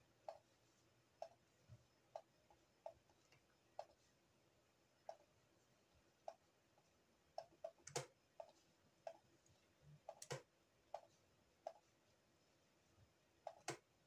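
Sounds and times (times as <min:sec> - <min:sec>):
computer mouse clicking: 0:07.3 - 0:09.2, 0:10.0 - 0:11.9, 0:13.4 - 0:13.9.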